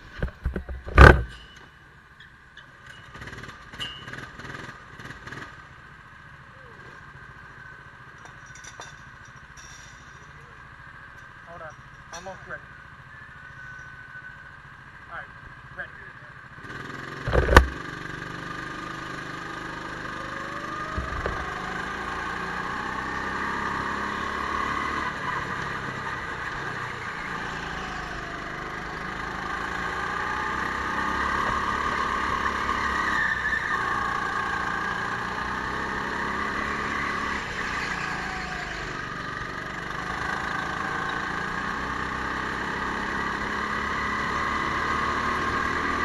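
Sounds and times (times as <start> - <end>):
go-kart motor revving: 3.0 - 8.1, 16.4 - 46.0.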